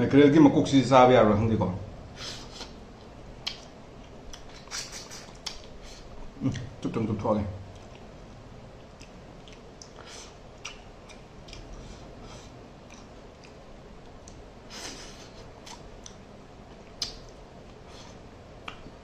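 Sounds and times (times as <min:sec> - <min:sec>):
wet chewing mouth sounds: 0:02.4 - 0:06.2, 0:07.7 - 0:14.5.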